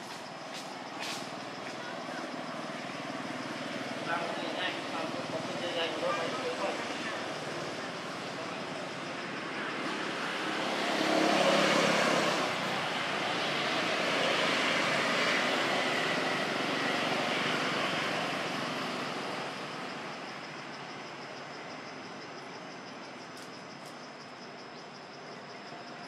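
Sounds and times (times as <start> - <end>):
passing vehicle engine: 2.3 - 20.2.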